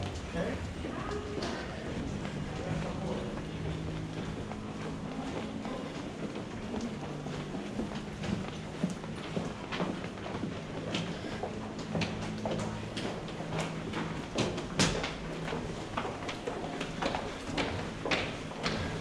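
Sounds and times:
low hum: 0.0 - 18.0
footsteps clicking on hard floor: 0.0 - 19.0.

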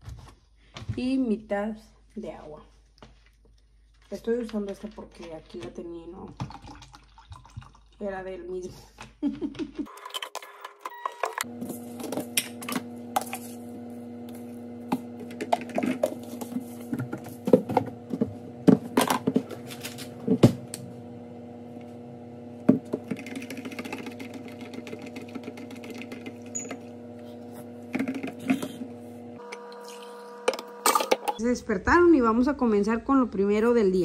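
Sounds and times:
microwave oven humming: 10.9 - 31.4
metal spoon stirring in cup: 23.1 - 28.9.

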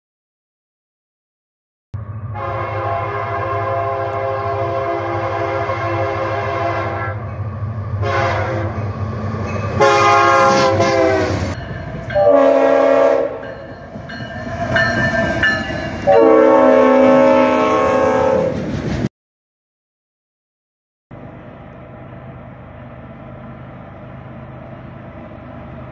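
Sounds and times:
low locomotive engine rumble: 2.0 - 19.1, 21.1 - 25.9
locomotive horn blasts: 2.3 - 7.2, 8.0 - 8.8, 9.8 - 13.5, 16.0 - 18.6.

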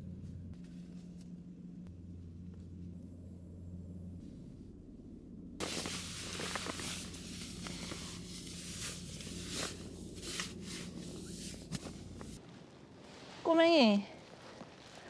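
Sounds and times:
low steady hum: 0.0 - 15.0
rustling and scuffing: 5.6 - 15.0.

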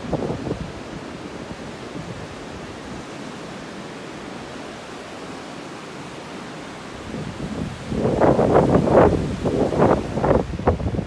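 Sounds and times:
wind on the microphone: 0.0 - 3.3, 6.8 - 11.0
ocean surf rushing: 0.0 - 11.0.

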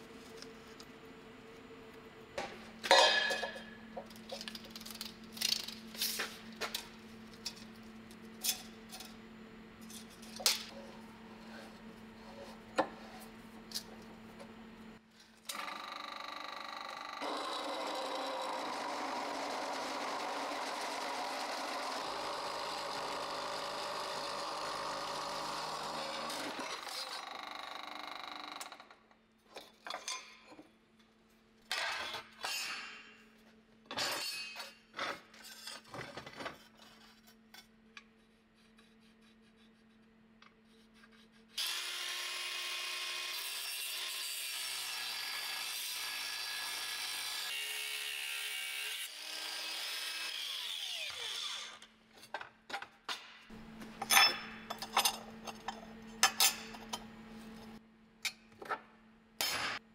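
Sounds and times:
power tool running: 15.5 - 28.6, 41.6 - 44.2.

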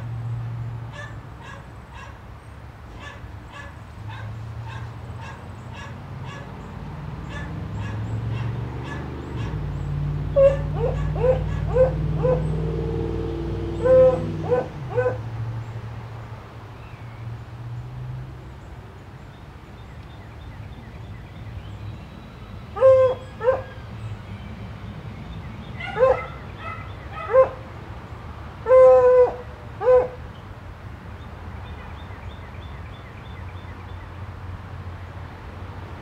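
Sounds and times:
dog barking: 0.9 - 2.2, 3.0 - 6.5, 7.2 - 9.6, 10.4 - 12.5, 13.8 - 15.2, 22.8 - 23.8, 25.8 - 27.6, 28.7 - 30.2.

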